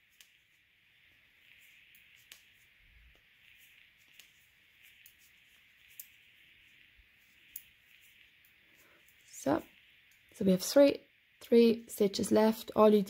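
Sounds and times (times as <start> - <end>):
knitting needles clicking: 0.0 - 0.6, 1.4 - 10.4
low steady hiss: 0.0 - 13.0.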